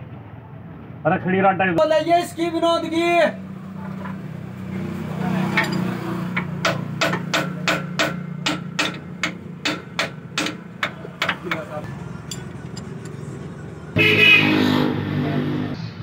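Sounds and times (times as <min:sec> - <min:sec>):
hand tool knocking on metal: 0:05.4 - 0:13.2.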